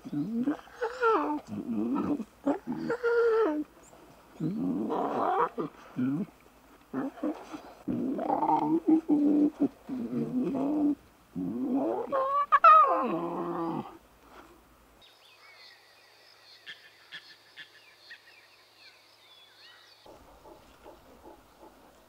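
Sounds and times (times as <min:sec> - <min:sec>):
lion cubs moaning and growling: 0:00.0 - 0:03.8, 0:04.4 - 0:14.0.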